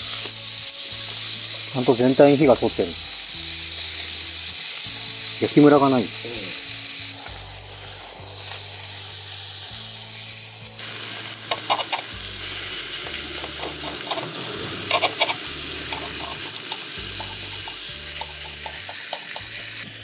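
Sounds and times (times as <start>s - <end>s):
steak sizzling on griddle: 0.0s - 20.0s
knife and fork scraping iron: 13.4s - 18.9s.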